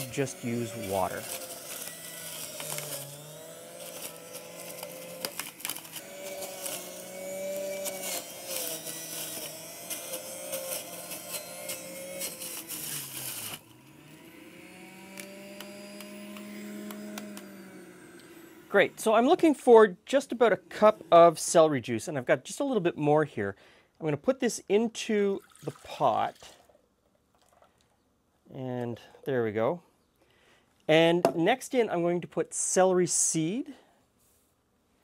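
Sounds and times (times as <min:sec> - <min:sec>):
celery being shredded: 0:00.0 - 0:13.7
juicer motor running: 0:00.0 - 0:19.7.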